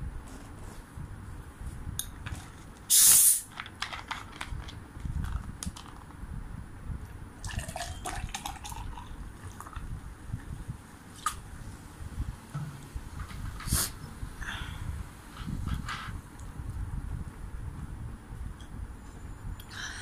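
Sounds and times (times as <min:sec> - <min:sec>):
bottle cap hiss of gas: 0:02.9 - 0:03.6
cola pouring and fizzing: 0:07.4 - 0:10.0.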